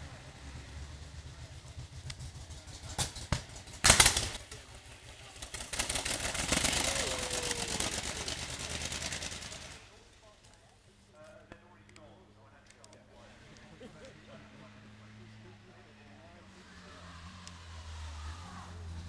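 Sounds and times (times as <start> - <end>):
racing car engine exhaust rattle: 0.0 - 10.0.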